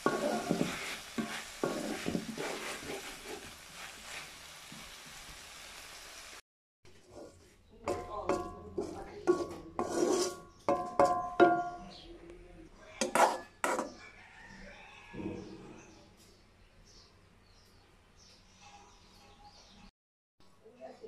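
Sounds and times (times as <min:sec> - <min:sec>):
spatula clinking in metal wok: 0:07.8 - 0:11.8.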